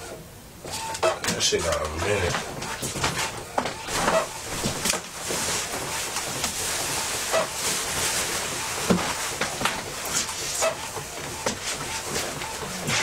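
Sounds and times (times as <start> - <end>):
nylon jacket rustling: 3.9 - 10.7.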